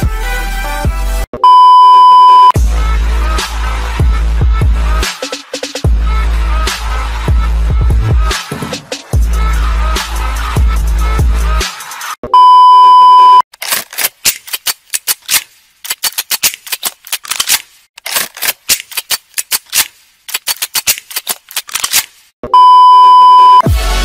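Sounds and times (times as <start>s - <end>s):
test-tone beep: 1.4s - 2.6s, 12.3s - 13.4s, 22.5s - 23.7s
gun-action clicks: 13.6s - 22.1s.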